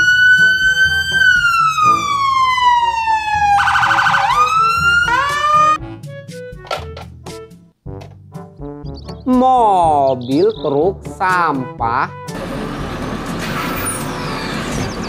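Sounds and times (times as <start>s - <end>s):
police siren wailing: 0.0s - 5.8s.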